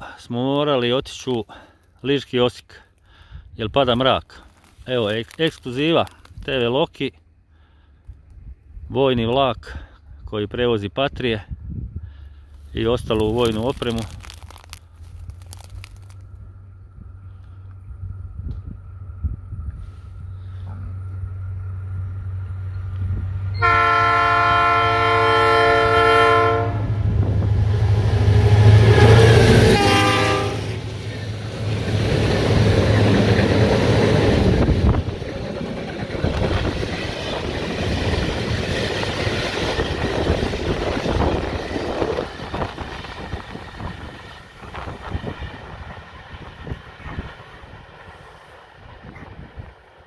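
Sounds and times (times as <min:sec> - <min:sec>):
locomotive engine running: 0:13.0 - 0:50.0
train horn blasts: 0:23.5 - 0:27.1, 0:28.2 - 0:30.8
train wheels clattering over rail joints: 0:31.0 - 0:48.3.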